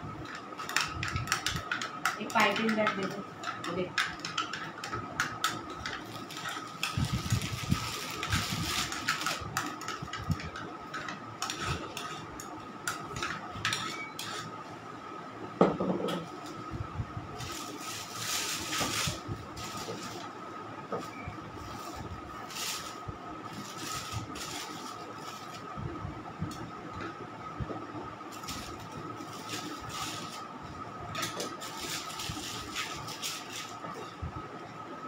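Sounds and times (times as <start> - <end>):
plastic piping bag rustling: 6.1 - 9.4, 17.4 - 20.3
spatula scraping a bowl: 11.4 - 12.4, 13.2 - 14.5.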